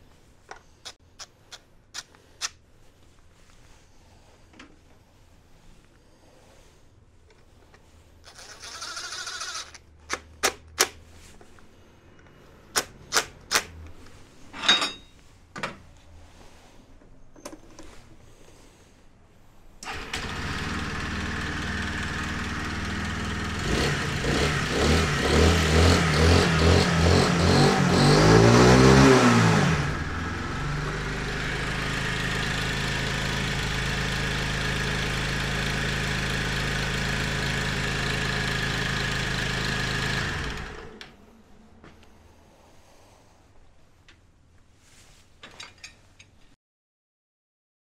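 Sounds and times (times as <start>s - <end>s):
cordless drill bursts: 8.3s - 9.8s
scooter engine revving and idling: 19.9s - 41.0s.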